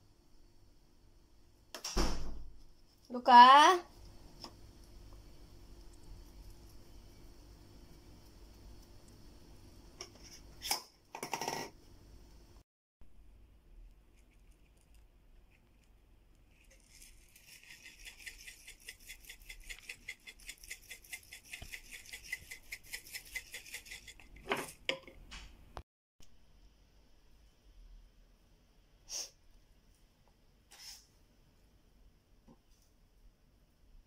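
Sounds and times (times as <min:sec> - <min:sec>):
pepper grinder grinding: 0:16.5 - 0:24.4.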